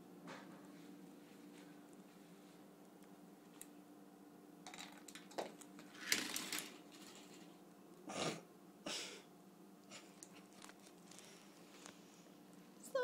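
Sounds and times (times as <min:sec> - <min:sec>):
faint steady hum: 0:00.0 - 0:13.0
plastic objects clattering on wood: 0:04.6 - 0:07.6.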